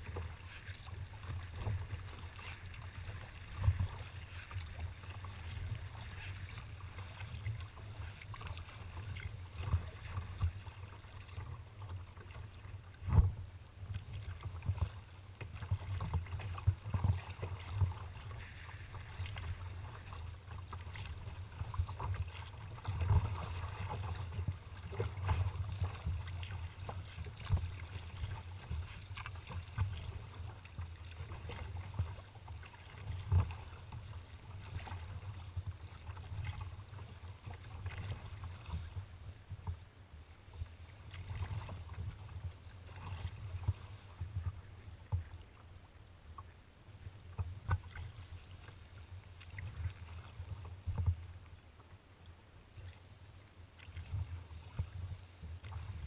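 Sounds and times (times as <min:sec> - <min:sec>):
wind rumbling on microphone: 0:00.0 - 0:39.8
water splashing against kayak hull: 0:00.0 - 0:56.0.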